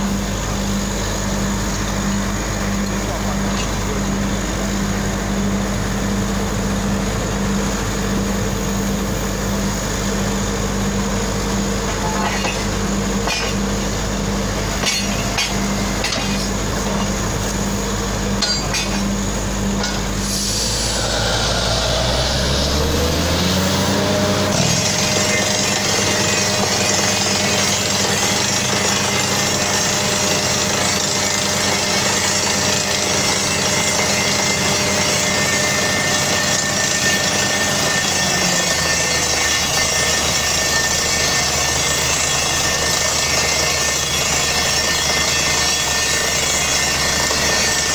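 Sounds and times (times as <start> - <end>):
drilling rig engine: 0.0 - 47.9
compressed air hissing: 20.1 - 23.9.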